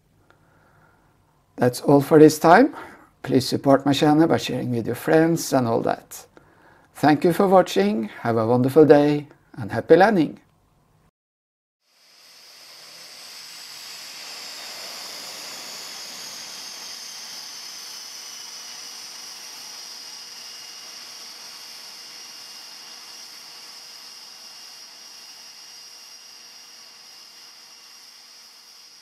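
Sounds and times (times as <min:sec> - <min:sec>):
aircraft turbine engine whine: 0:11.9 - 0:29.0.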